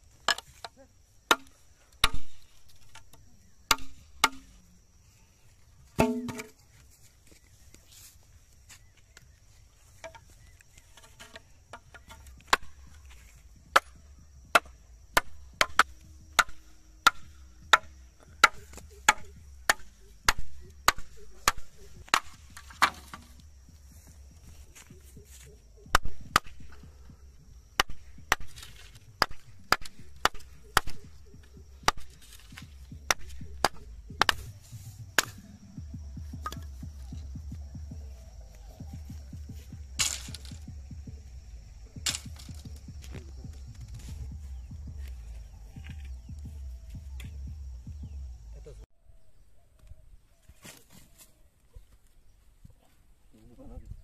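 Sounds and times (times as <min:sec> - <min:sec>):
knife chopping bamboo: 0:01.3 - 0:02.9, 0:03.7 - 0:04.5, 0:13.7 - 0:23.4, 0:27.8 - 0:35.6, 0:39.2 - 0:40.7.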